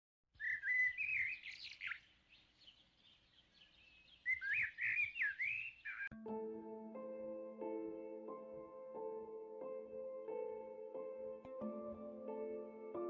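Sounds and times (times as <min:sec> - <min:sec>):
songbird singing: 0:00.4 - 0:06.2.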